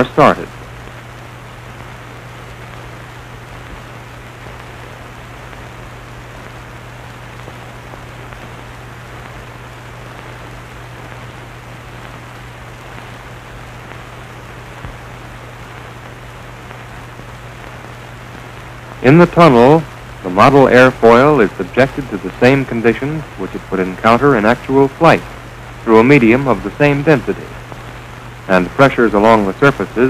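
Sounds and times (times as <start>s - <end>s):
fans low hum: 0.0s - 30.0s.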